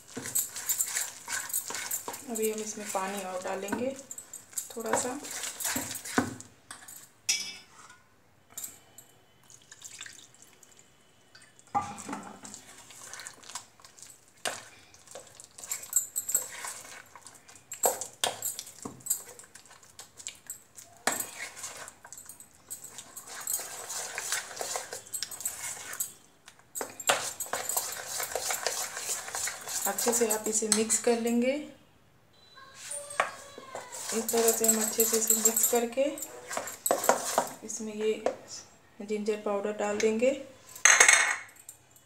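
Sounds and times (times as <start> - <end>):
hand squelching wet batter: 0.0 - 6.4, 12.3 - 30.8, 33.3 - 37.8.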